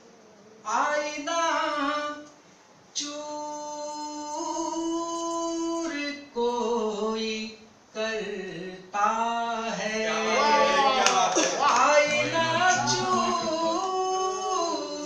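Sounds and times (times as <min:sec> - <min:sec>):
man singing into a microphone: 0:11.8 - 0:15.0.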